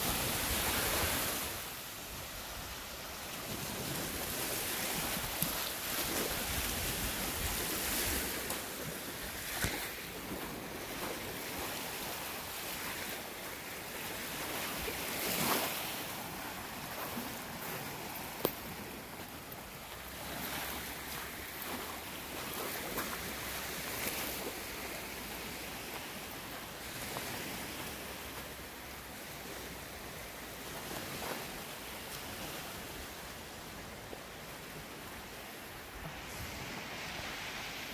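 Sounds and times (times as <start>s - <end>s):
waves lapping on gravel shore: 0.0s - 37.9s.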